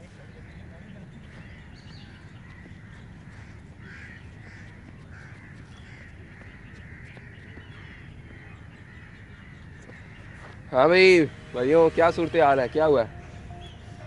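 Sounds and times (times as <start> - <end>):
crows cawing: 1.3 - 10.8.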